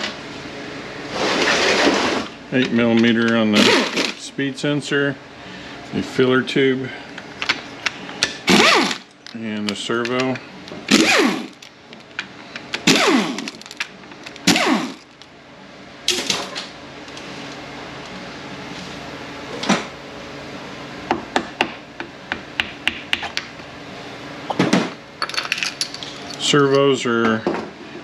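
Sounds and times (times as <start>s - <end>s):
power ratchet whirring: 3.6s - 4.2s, 8.4s - 9.1s, 10.9s - 11.7s, 12.7s - 15.2s.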